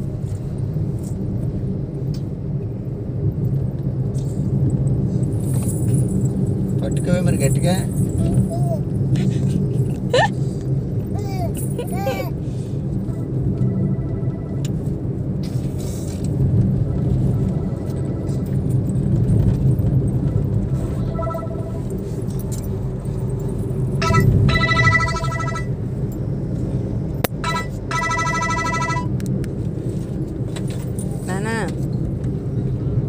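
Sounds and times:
car engine and road rumble: 0:00.0 - 0:33.0
high-pitched ringing: 0:21.0 - 0:22.0, 0:24.0 - 0:25.8, 0:27.3 - 0:29.2.

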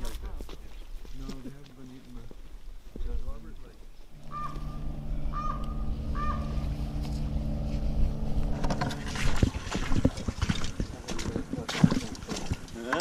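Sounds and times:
steady low hum: 0:04.0 - 0:11.2
bird call rising note: 0:04.1 - 0:09.2.

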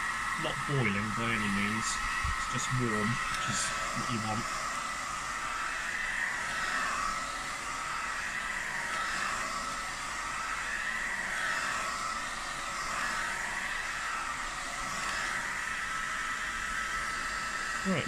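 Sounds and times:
hot-air blower hissing and whining: 0:00.0 - 0:18.0.

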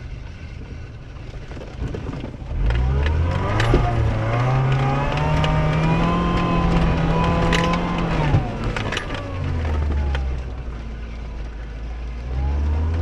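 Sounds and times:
car engine revving high: 0:02.5 - 0:10.5.

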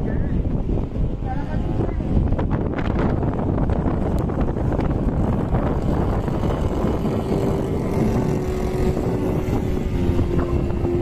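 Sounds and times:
wind buffeting microphone: 0:00.0 - 0:11.0
model airplane engine droning: 0:03.6 - 0:11.0.

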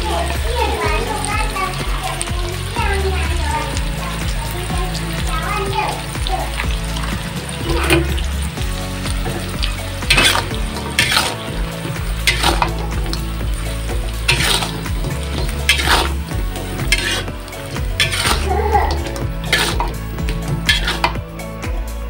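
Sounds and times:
food sizzling: 0:00.0 - 0:22.0
metal spatula scraping wok: 0:07.5 - 0:08.3, 0:09.2 - 0:21.2.

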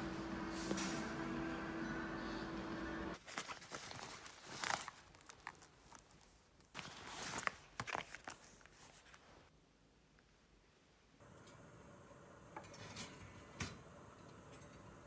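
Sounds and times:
steady hum: 0:00.0 - 0:03.2
plastic wrap crinkling: 0:03.2 - 0:09.5.

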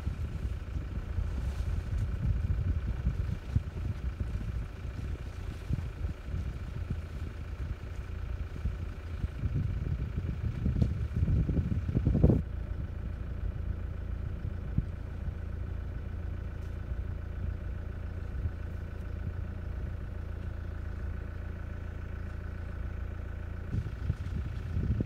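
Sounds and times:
wind buffeting microphone: 0:00.0 - 0:12.6, 0:23.6 - 0:25.0
vehicle engine idling: 0:00.0 - 0:25.0.

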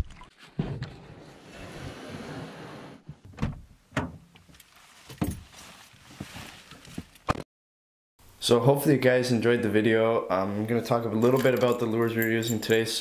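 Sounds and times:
car door clicks and knocks: 0:03.2 - 0:04.2.

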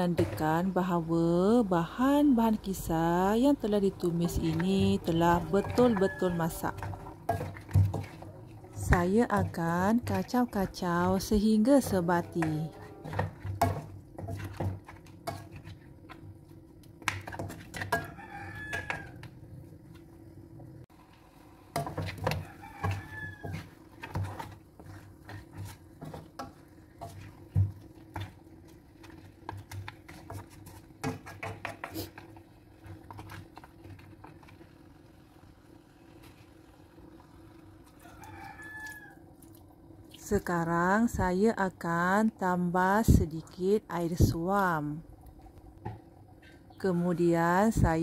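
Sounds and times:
spatula scraping in a wok: 0:00.0 - 0:20.1, 0:20.9 - 0:37.2
rooster crowing: 0:05.4 - 0:07.2, 0:18.0 - 0:19.3, 0:22.3 - 0:23.7, 0:38.0 - 0:39.3.

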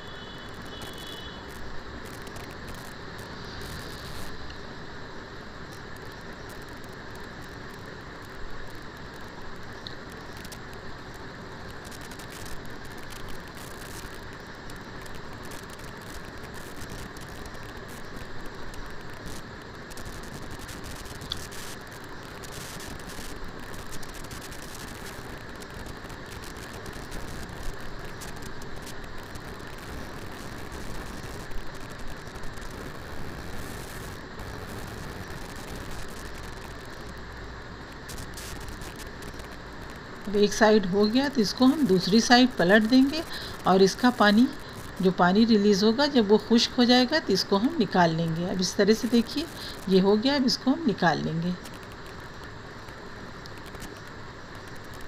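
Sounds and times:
liver sizzling in hot oil: 0:00.1 - 0:46.1
oil popping and crackling: 0:00.5 - 0:04.6, 0:05.5 - 0:40.6, 0:51.5 - 0:55.0.

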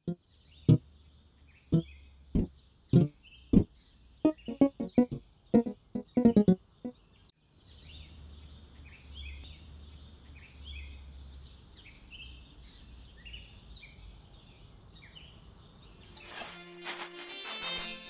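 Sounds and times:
birds chirping: 0:01.7 - 0:07.0.

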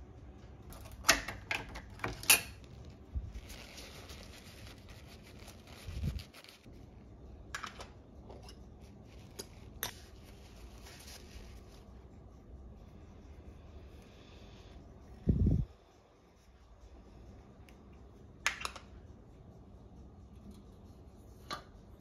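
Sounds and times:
paper towel rustling: 0:02.8 - 0:06.7.

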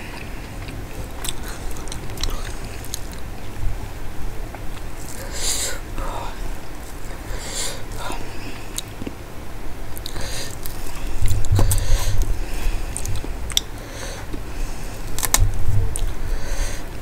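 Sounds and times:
chewing: 0:00.0 - 0:03.6, 0:07.9 - 0:09.2, 0:09.9 - 0:16.2.

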